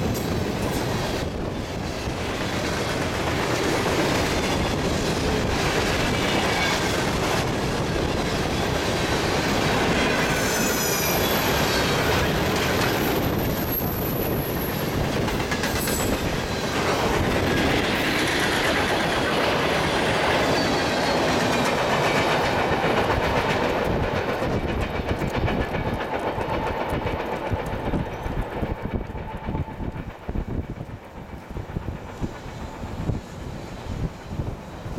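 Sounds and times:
train wheels clacking over rail joints: 0.0s - 34.9s
high wheel squeal: 10.1s - 15.0s, 15.7s - 16.7s, 20.3s - 21.7s.

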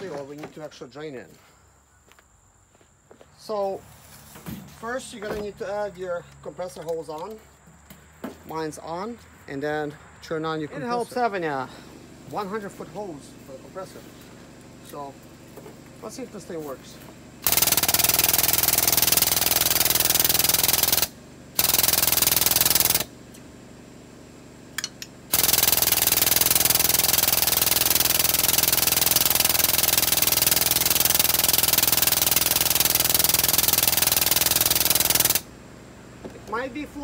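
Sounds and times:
air hydraulic pump chattering: 17.4s - 23.1s, 24.8s - 35.5s.

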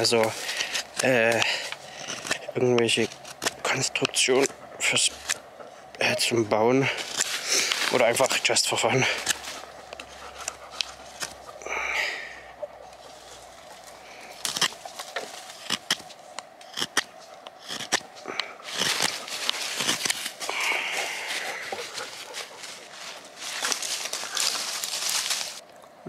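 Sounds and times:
knife carving wood: 0.0s - 11.6s, 12.9s - 20.5s.

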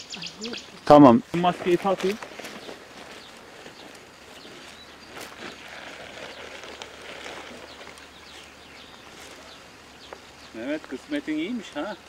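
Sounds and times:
faint bird chirps: 0.0s - 0.8s.

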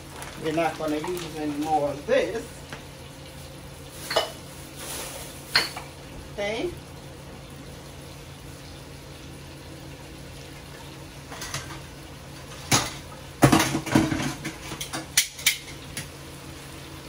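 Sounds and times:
meat sizzling in hot oil: 0.0s - 17.0s
metal utensils clanking on pot: 12.7s - 16.0s.

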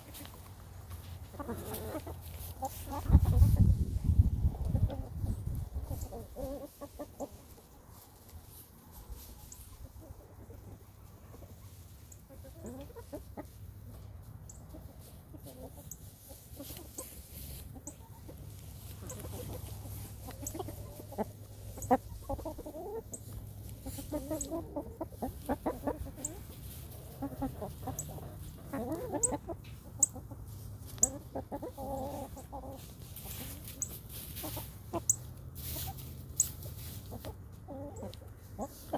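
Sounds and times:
hens clucking softly: 0.0s - 38.9s
pecking and scratching in straw: 0.0s - 38.9s.

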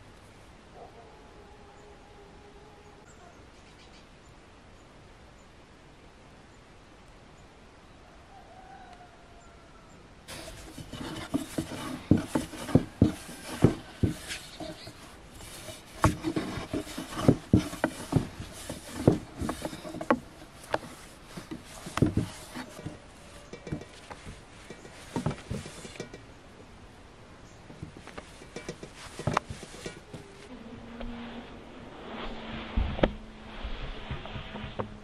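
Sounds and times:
rolling pin rumbling on board: 10.3s - 26.2s, 27.7s - 30.2s
wooden knocks and taps: 10.3s - 26.3s, 27.7s - 30.3s.

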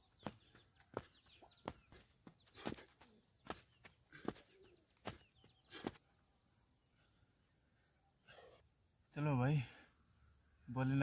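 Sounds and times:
faint birds chirping: 0.0s - 11.0s.

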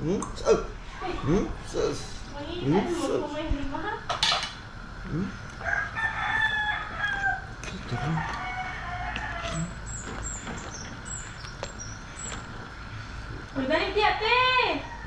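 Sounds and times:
rooster crowing: 5.6s - 10.0s, 14.5s - 15.0s.

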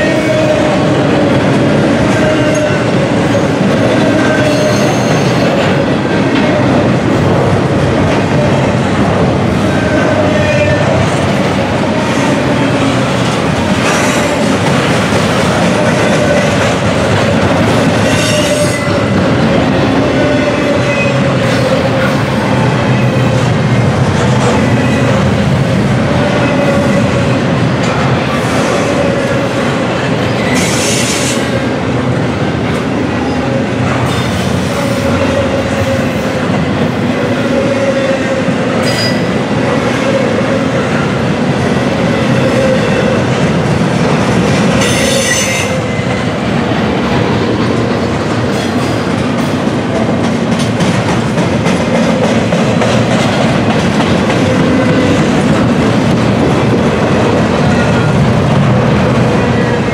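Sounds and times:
clickety-clack of rail joints: 0.0s - 40.2s, 40.8s - 59.9s
freight train wheels rumbling: 0.0s - 59.9s
high wheel squeals: 4.3s - 5.5s.

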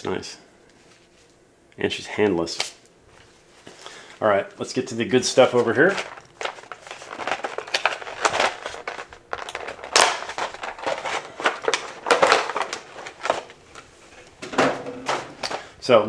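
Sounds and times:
plastic cover crinkling and crackling: 5.2s - 14.4s.

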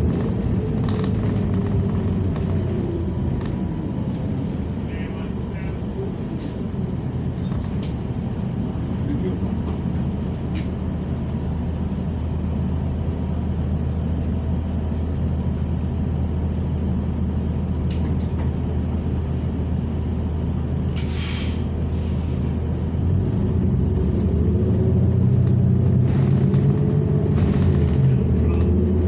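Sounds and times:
bus engine droning: 0.0s - 29.0s
short hiss of air: 21.0s - 22.4s.

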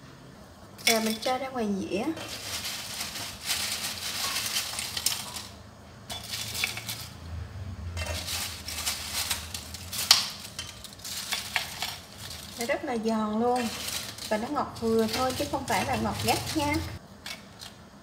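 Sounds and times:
chips clattering onto ceramic plate: 2.2s - 7.2s, 8.0s - 12.8s, 13.4s - 17.8s.

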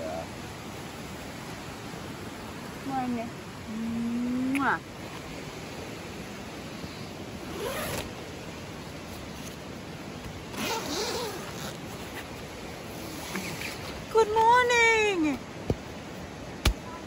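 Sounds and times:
background hiss: 0.0s - 17.0s
tent zipper pulled: 7.4s - 8.2s, 10.5s - 14.0s.

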